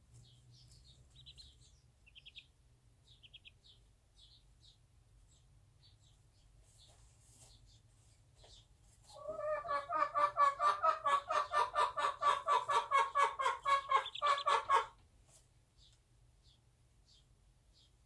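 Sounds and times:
hen clucking: 0:01.1 - 0:02.5, 0:03.1 - 0:03.8, 0:09.0 - 0:15.0.

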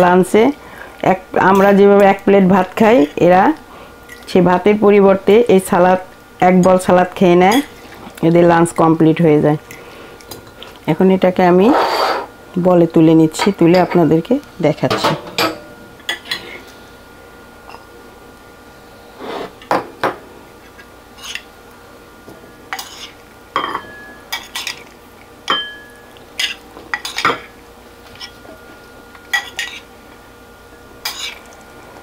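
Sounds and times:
metal spoon clinking on ceramic bowls: 0:25.5 - 0:27.5, 0:29.3 - 0:29.8.

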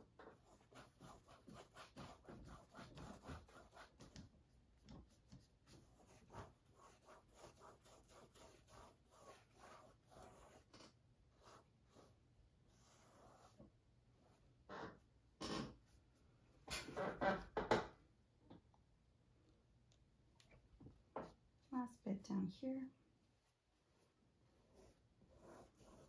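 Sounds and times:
brush rubbing paint on canvas: 0:00.0 - 0:14.7, 0:23.3 - 0:26.0.

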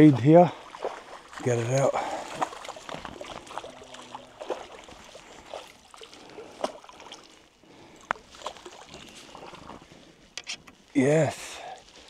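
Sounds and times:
creek water splashing: 0:00.0 - 0:12.0.

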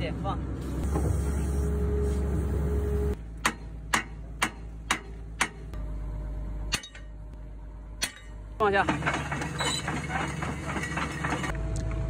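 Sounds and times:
low steady rumble: 0:00.0 - 0:12.0
hammer striking steel: 0:03.4 - 0:05.8, 0:06.7 - 0:07.2, 0:08.0 - 0:09.0.

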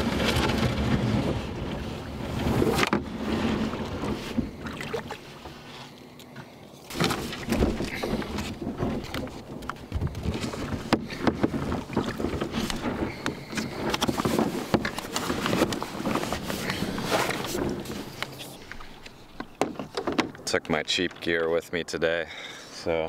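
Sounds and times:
rustling scrapes: 0:00.0 - 0:04.6, 0:06.8 - 0:19.4
knocks and bumps on kayak hull: 0:06.9 - 0:18.2.

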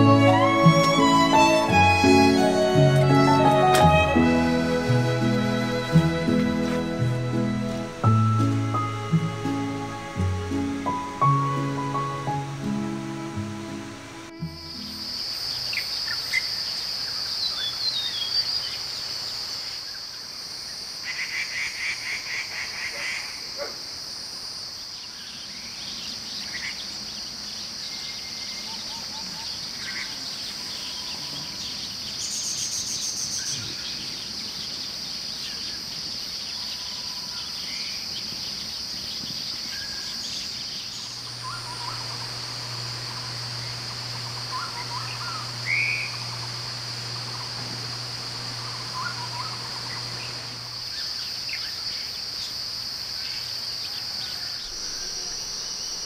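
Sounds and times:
rapid pulsed calls: 0:00.0 - 0:18.5, 0:40.0 - 0:56.0
crickets droning: 0:00.0 - 0:56.0
bird chirps: 0:25.0 - 0:47.6, 0:48.5 - 0:52.6
low steady hum: 0:41.0 - 0:53.1.

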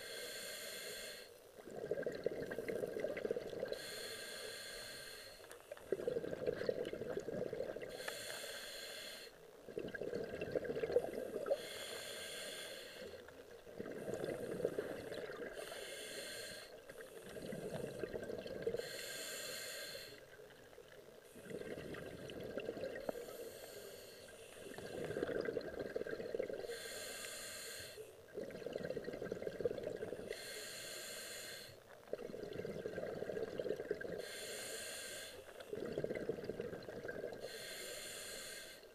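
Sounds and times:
hissing regulator inhale: 0:00.0 - 0:01.4, 0:02.7 - 0:06.3, 0:07.8 - 0:09.4, 0:11.0 - 0:20.3, 0:22.9 - 0:25.6, 0:26.5 - 0:28.3, 0:30.1 - 0:31.9, 0:32.6 - 0:36.2, 0:37.2 - 0:38.9
bubbling exhaust underwater: 0:00.0 - 0:38.9.

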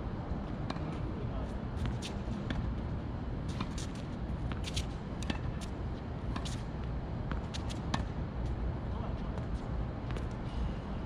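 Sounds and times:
tennis balls bouncing on court: 0:03.5 - 0:06.6
tennis balls struck by rackets: 0:04.5 - 0:05.7.

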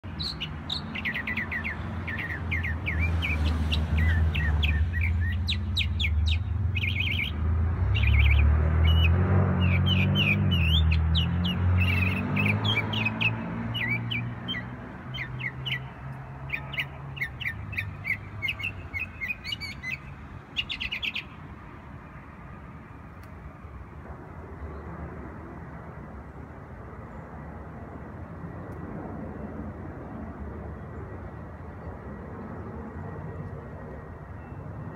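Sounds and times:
small songbirds chirping: 0:00.0 - 0:21.5.

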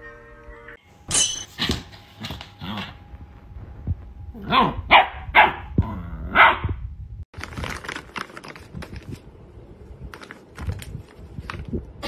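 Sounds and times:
puppy barking: 0:04.4 - 0:06.8
plastic bags crinkling: 0:07.3 - 0:09.2.

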